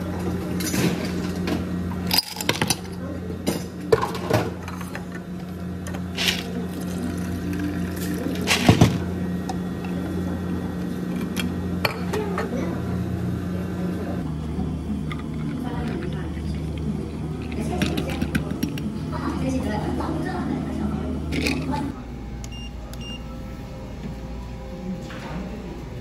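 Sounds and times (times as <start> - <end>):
low electrical hum: 0.0 - 26.0.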